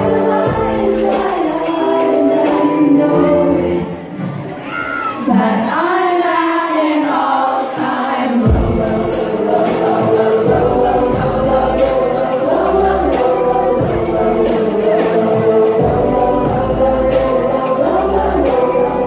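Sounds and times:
woman singing into microphone: 0.0s - 4.2s, 5.2s - 19.0s
bass and drums: 8.5s - 17.5s.

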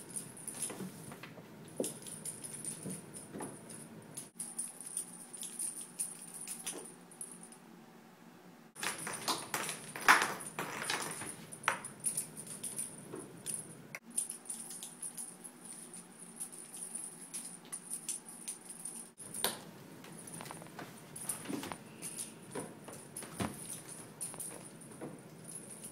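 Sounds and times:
faint high jingle: 21.2s - 25.9s.

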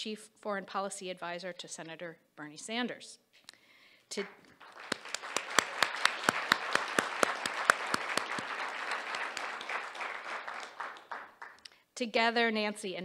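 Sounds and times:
close hand claps: 4.2s - 11.8s
audience applauding: 4.5s - 11.7s.

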